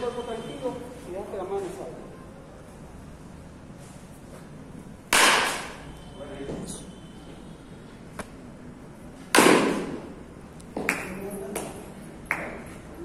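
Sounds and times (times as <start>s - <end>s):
baseball bat striking ball: 5.1s - 5.9s, 9.2s - 10.2s.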